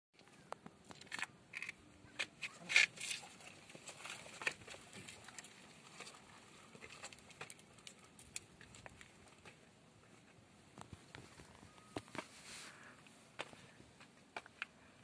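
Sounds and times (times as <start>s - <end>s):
footsteps on stone steps: 13.0s - 14.7s.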